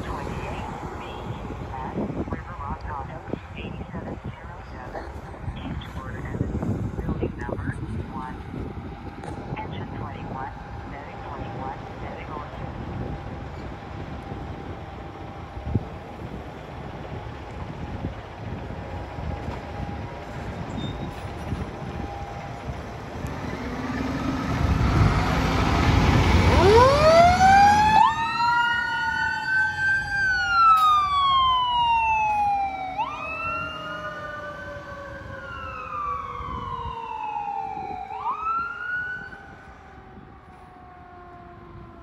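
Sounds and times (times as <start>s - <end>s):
diesel engine rumbling: 0.0s - 41.9s
siren wailing up and down: 23.4s - 42.0s
siren winding up and falling: 26.4s - 39.5s.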